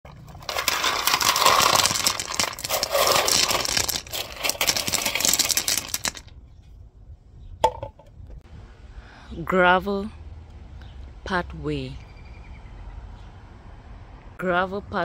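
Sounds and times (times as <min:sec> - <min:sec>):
gravel rattling and crunching: 0:00.1 - 0:06.6.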